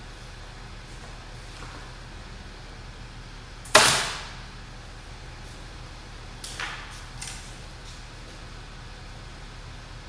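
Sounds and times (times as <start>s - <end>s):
pneumatic stapler firing: 3.6s - 4.4s.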